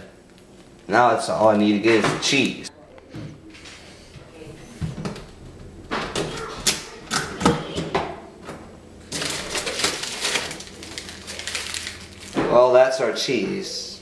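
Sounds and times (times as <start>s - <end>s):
plastic wrapping crinkling: 9.1s - 12.6s.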